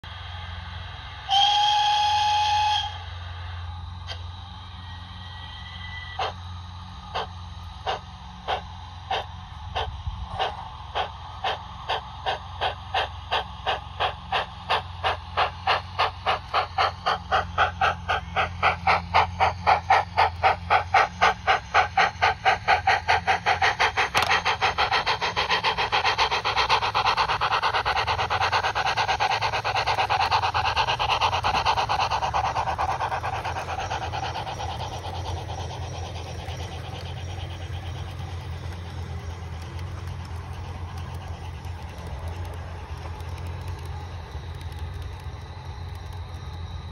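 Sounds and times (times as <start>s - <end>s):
model steam locomotive chuffing: 0.0s - 46.9s.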